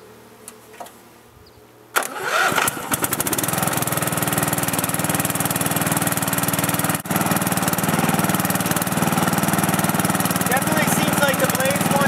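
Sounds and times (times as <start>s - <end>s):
riding mower engine running: 2.0s - 12.0s.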